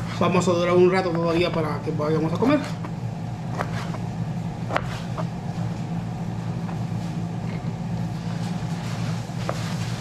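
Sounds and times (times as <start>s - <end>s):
steady low hum: 0.0s - 10.0s
knife cutting ribs: 2.1s - 5.4s.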